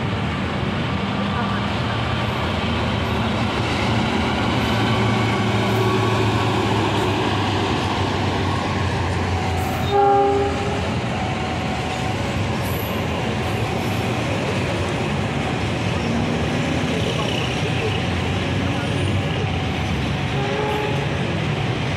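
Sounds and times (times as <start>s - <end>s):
diesel locomotive engine hum: 0.0s - 21.9s
train wheels on rails: 0.0s - 21.9s
train horn blast: 9.5s - 11.0s, 20.3s - 21.4s.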